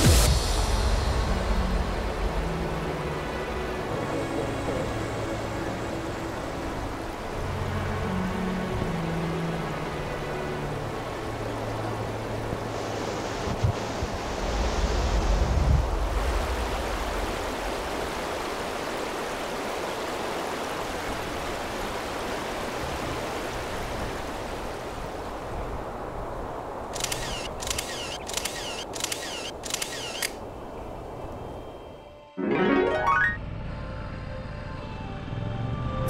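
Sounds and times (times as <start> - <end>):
river rushing over gravel: 0.0 - 26.2
sharp clicks: 27.0 - 30.4.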